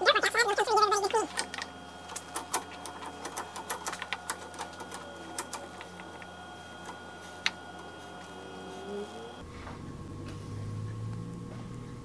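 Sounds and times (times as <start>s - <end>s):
steady hum: 0.0s - 12.0s
lathe chuck clicking and rattling: 1.1s - 8.0s.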